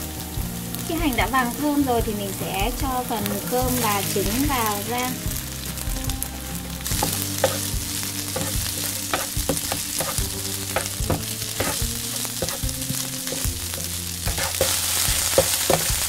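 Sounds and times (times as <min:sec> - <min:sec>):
rice sizzling in oil: 0:00.0 - 0:16.0
wooden spatula scraping pan: 0:03.2 - 0:16.0.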